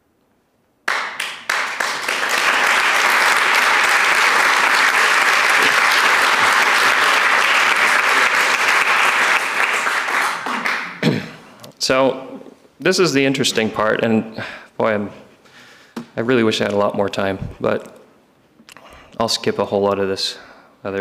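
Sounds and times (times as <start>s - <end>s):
audience applauding: 0.9s - 11.2s.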